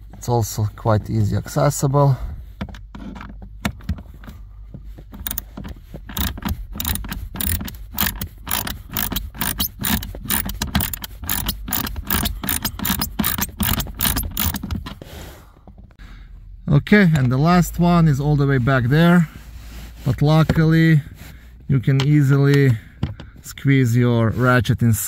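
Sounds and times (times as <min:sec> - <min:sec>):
ratchet clicking: 0:05.2 - 0:14.8.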